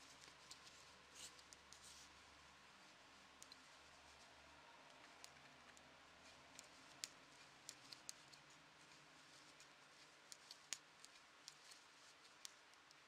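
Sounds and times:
knitting needles clicking: 0:03.4 - 0:03.6, 0:05.0 - 0:05.8, 0:06.5 - 0:08.5, 0:09.3 - 0:13.0.

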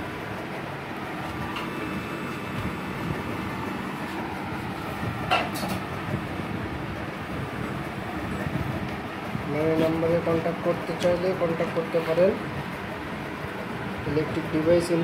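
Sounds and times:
inverter rumbling hum: 0:00.0 - 0:15.0.

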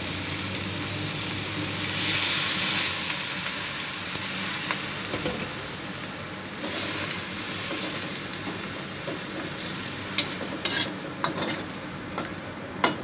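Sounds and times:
food sizzling in a wok: 0:00.0 - 0:13.0.

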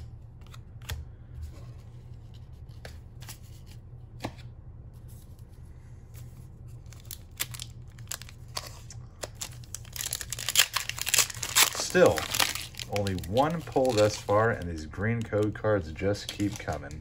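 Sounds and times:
steady low hum: 0:00.0 - 0:17.0
foil pack crinkling: 0:06.8 - 0:17.0.

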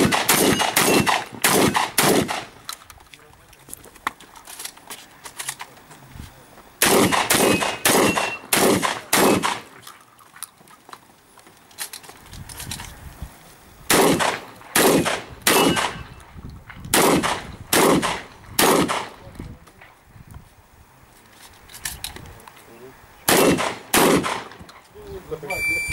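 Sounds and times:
shotgun firing: 0:00.0 - 0:02.6, 0:06.8 - 0:09.8, 0:13.9 - 0:16.1, 0:16.9 - 0:19.2, 0:23.3 - 0:24.7.

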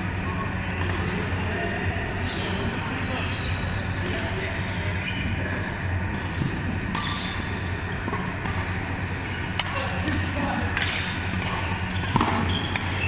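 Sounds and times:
low hum of hall: 0:00.0 - 0:13.0
shoes squeaking on floor: 0:06.3 - 0:07.4, 0:08.1 - 0:09.5, 0:11.8 - 0:13.0
rackets striking shuttlecock: 0:09.4 - 0:13.0.

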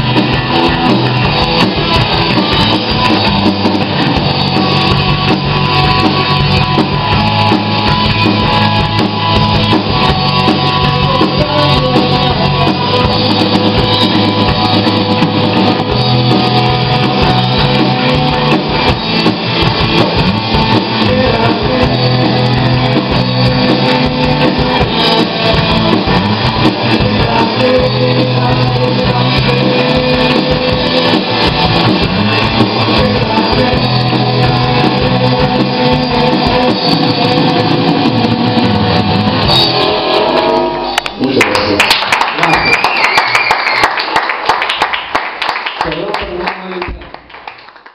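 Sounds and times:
drum kit beat: 0:00.0 - 0:42.8
electric guitar: 0:00.0 - 0:43.5
bass guitar: 0:00.0 - 0:43.8.

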